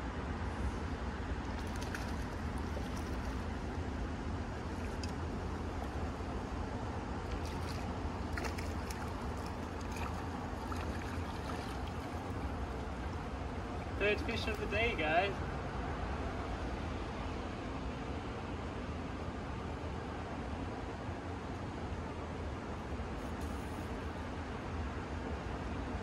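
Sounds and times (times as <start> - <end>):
rippling river flowing: 1.4 - 14.6.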